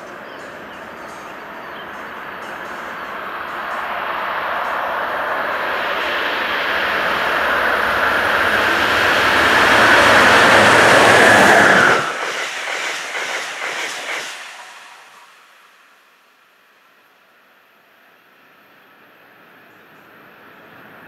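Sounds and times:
train approaching with air rush: 0:00.0 - 0:19.5
train wheels clicking over rail joints: 0:00.1 - 0:15.6.

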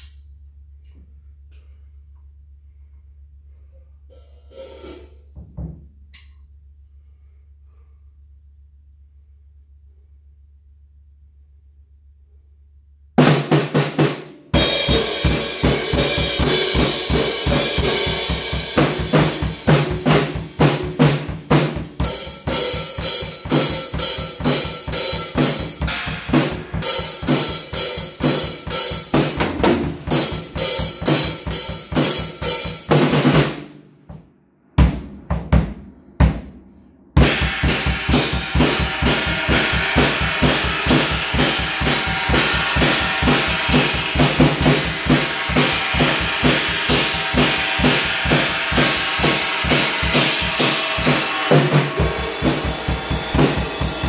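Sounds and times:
cymbals: 0:04.0 - 0:05.4, 0:13.3 - 0:33.7, 0:34.8 - 0:54.0
bass drum: 0:32.9 - 0:54.0.

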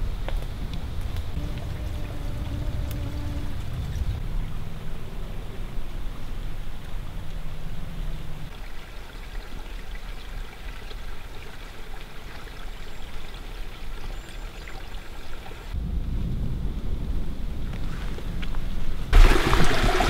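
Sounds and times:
low rumble: 0:00.0 - 0:08.5, 0:15.8 - 0:19.1
water trickling: 0:01.1 - 0:15.8.

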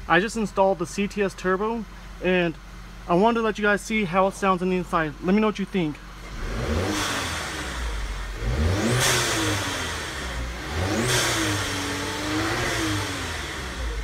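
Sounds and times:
car engine revving: 0:06.2 - 0:14.0.

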